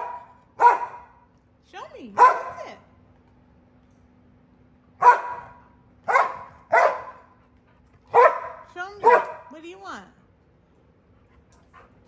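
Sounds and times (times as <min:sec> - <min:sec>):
dog barking: 0:00.0 - 0:01.2, 0:02.2 - 0:02.7, 0:05.0 - 0:07.3, 0:08.1 - 0:09.5.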